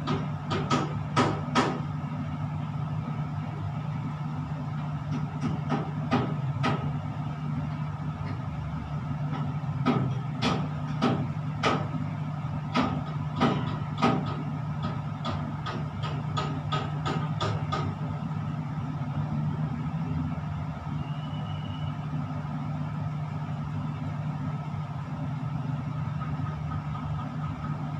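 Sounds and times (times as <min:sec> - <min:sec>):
crane cab low hum: 0:00.0 - 0:27.9.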